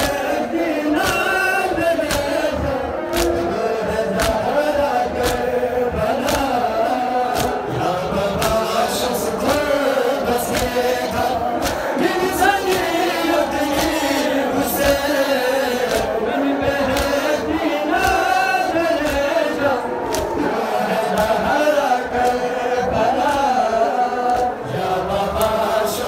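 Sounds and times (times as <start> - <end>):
men chanting in unison: 0.0 - 26.0
chest-beating slaps: 2.0 - 2.4, 3.1 - 3.5, 4.2 - 4.5, 5.2 - 5.6, 6.2 - 6.6, 7.3 - 7.6, 8.4 - 8.7, 10.4 - 21.5, 24.2 - 24.6.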